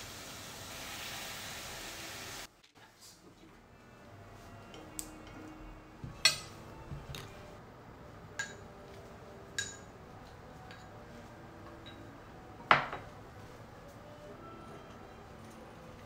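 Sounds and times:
tableware clinking: 0:06.1 - 0:07.4, 0:08.4 - 0:08.7, 0:09.5 - 0:09.9, 0:11.8 - 0:13.2.

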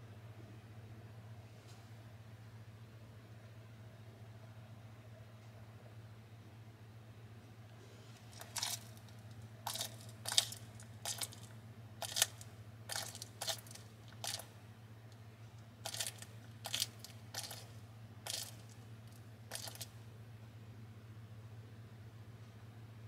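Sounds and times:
low steady hum: 0:00.0 - 0:23.0
lizard crunching insect shell: 0:08.2 - 0:14.5, 0:15.8 - 0:20.0.

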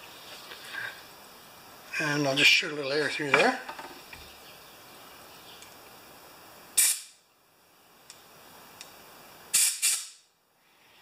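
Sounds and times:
compressed air blowgun hissing: 0:06.7 - 0:07.2, 0:08.4 - 0:11.0.

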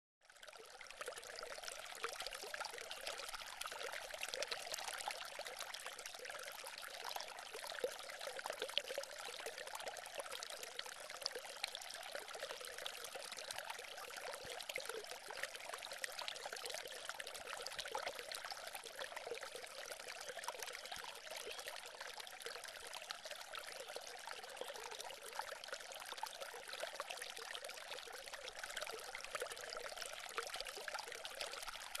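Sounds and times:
fountain water trickling: 0:00.2 - 0:32.0.

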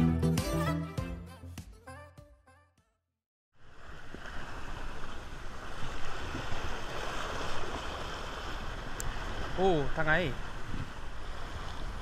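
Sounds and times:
wind rumbling on microphone: 0:03.6 - 0:12.0
sea waves splashing on rocks: 0:03.7 - 0:12.0.

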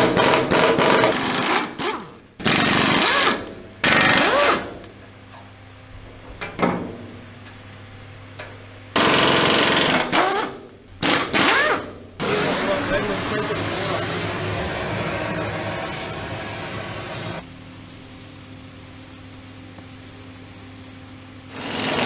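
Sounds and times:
pneumatic air tool hammering metal: 0:00.0 - 0:04.8, 0:09.0 - 0:17.4, 0:21.5 - 0:22.0.

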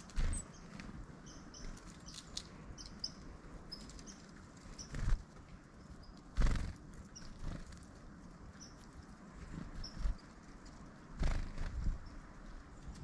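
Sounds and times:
small bird wing flutters: 0:04.0 - 0:05.3, 0:06.3 - 0:07.9, 0:11.2 - 0:12.0.

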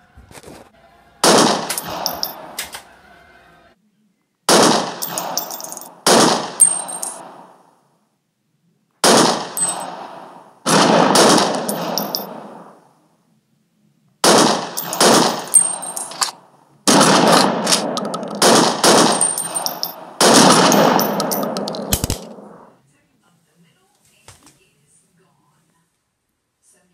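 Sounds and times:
automatic gunfire bursts: 0:01.2 - 0:02.2, 0:04.5 - 0:07.3, 0:09.0 - 0:10.0, 0:10.7 - 0:12.6, 0:14.2 - 0:16.2, 0:16.9 - 0:22.6
high metallic pings: 0:09.6 - 0:09.9, 0:14.8 - 0:16.1.

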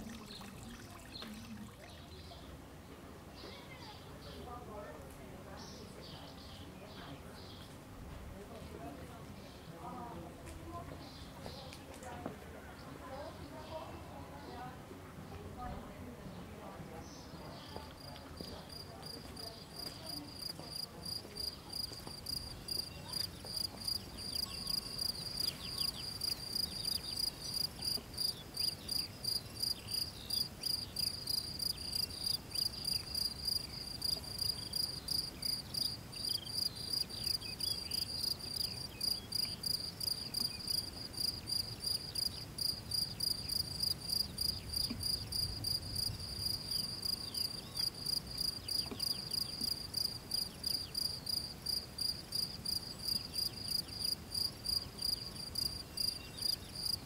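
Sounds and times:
cricket chirping: 0:18.4 - 0:57.0.

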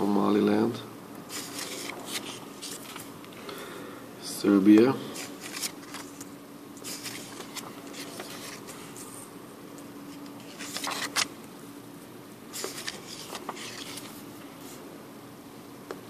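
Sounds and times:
faint steady hum: 0:00.0 - 0:16.0
paper banknotes rustling: 0:01.3 - 0:03.1, 0:05.2 - 0:09.2, 0:10.1 - 0:11.3, 0:12.5 - 0:14.2.

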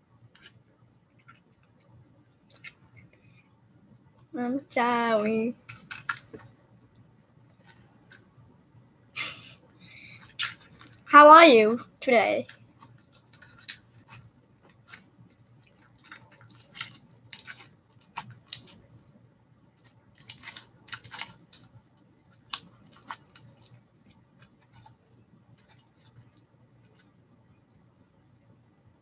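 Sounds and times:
scratchy rustles: 0:07.6 - 0:08.3, 0:10.0 - 0:19.1, 0:19.8 - 0:27.2.

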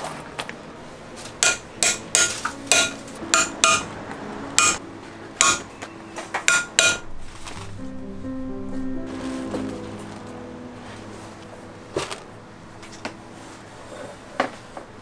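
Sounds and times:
hammer tapping steel punch: 0:01.4 - 0:03.9, 0:04.6 - 0:04.8, 0:05.4 - 0:05.7, 0:06.4 - 0:07.0.

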